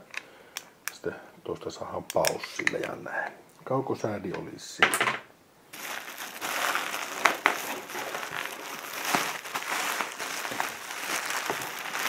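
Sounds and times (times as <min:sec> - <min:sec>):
bubble wrap crinkling: 0:05.7 - 0:12.0.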